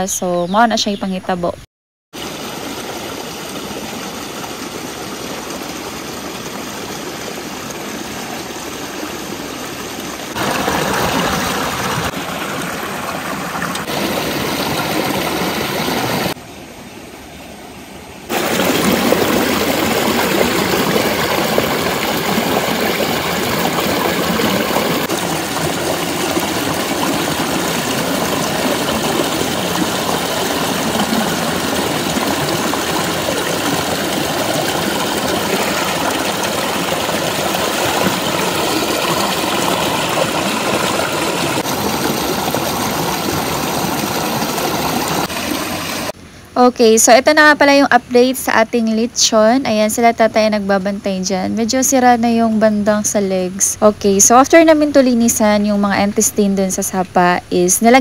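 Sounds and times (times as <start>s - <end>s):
creek rushing over rocks: 2.2s - 16.4s, 18.3s - 46.2s.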